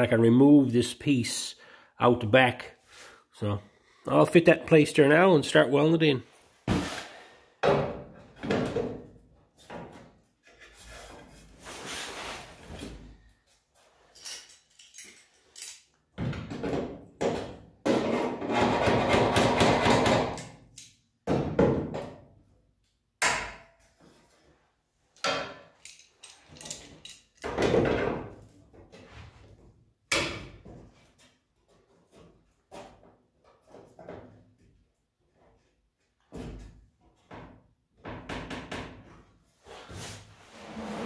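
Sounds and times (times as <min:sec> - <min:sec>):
locking pliers clamping: 0:25.8 - 0:27.4.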